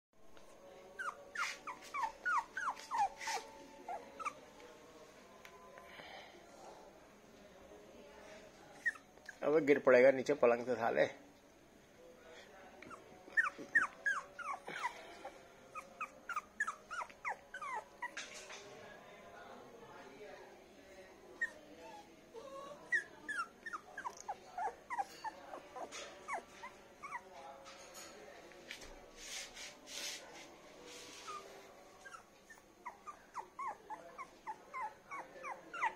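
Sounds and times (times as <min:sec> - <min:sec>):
puppy whimpering: 0:01.0 - 0:04.5, 0:08.8 - 0:09.4, 0:12.8 - 0:15.0, 0:15.7 - 0:18.2, 0:21.4 - 0:27.3, 0:31.2 - 0:35.9.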